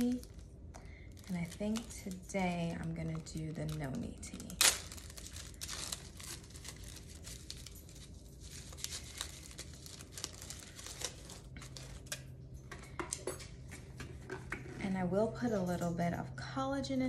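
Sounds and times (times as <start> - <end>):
wrapper crinkling: 0.0 - 12.3.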